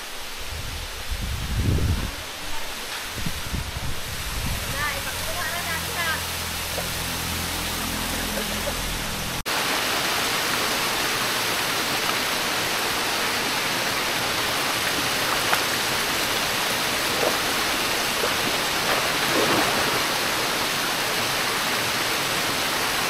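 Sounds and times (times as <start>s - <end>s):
waterfalls rushing into pool: 0.0s - 23.0s
person wading with splashes: 13.2s - 21.4s.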